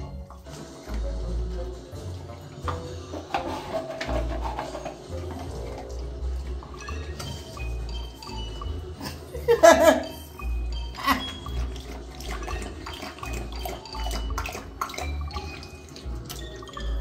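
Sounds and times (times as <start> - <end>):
background music: 0.0 - 17.0
dog lapping water: 10.8 - 17.0.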